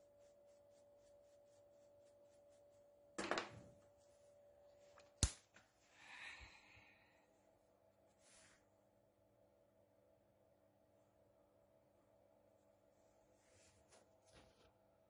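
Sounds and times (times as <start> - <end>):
paintbrush sweeping sawdust: 0.0 - 2.9
faint steady machine hum: 0.0 - 15.0.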